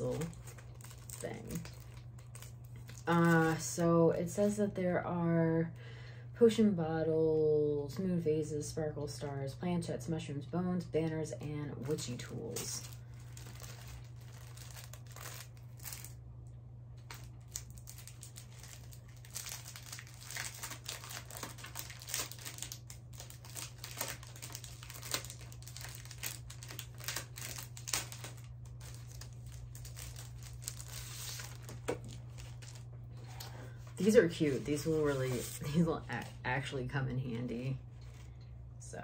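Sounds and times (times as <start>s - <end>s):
crinkly packaging crackling: 0.0s - 3.8s, 11.4s - 16.2s, 17.0s - 36.4s
steady low hum: 0.0s - 39.0s.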